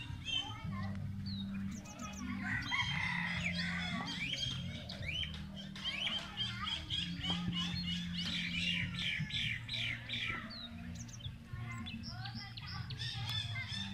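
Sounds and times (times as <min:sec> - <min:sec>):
birds chirping: 0:00.0 - 0:13.9.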